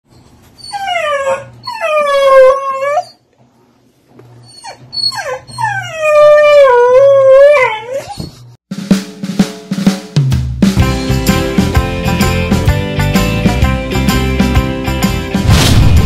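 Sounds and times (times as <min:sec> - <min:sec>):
dog yipping: 0:00.6 - 0:03.2, 0:04.4 - 0:08.5
dog howling: 0:00.8 - 0:03.2, 0:05.0 - 0:08.2.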